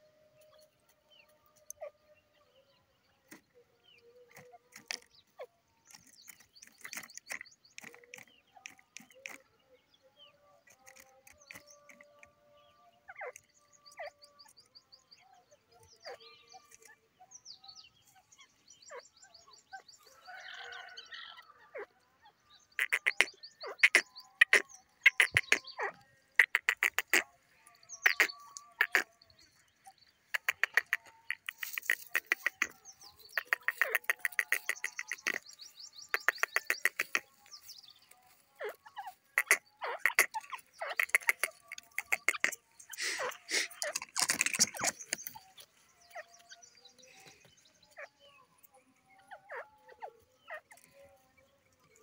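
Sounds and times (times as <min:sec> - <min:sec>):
bird calling: 0:22.8 - 0:38.0, 0:38.6 - 0:48.1.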